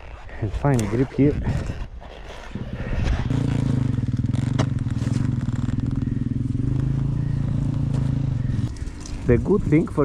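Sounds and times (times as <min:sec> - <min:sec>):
dirt bike engine running: 0:02.6 - 0:10.0.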